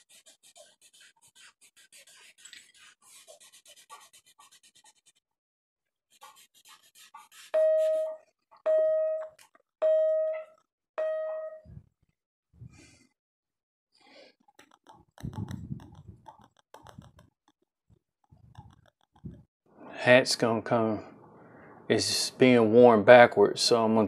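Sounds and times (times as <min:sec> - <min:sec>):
drawing stick scratching on paper: 0:00.0 - 0:05.2, 0:06.1 - 0:08.2, 0:14.6 - 0:17.3.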